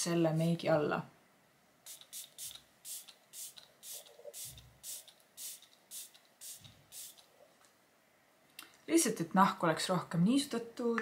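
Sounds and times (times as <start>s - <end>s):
spray bottle hissing puffs: 1.9s - 7.3s.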